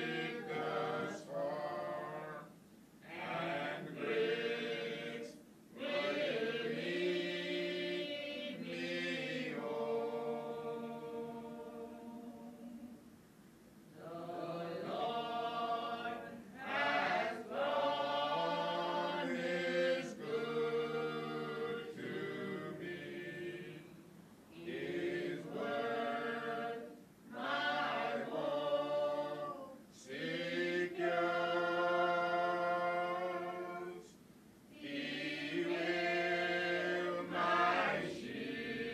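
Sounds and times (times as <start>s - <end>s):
choir singing unaccompanied: 0.0s - 13.0s, 13.9s - 38.9s.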